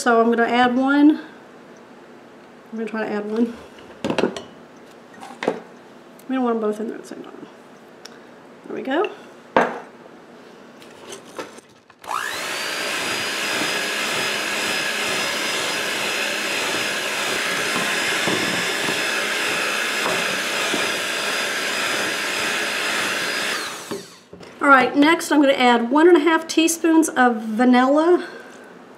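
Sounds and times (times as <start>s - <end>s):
electric mixer whining: 12.0s - 24.3s.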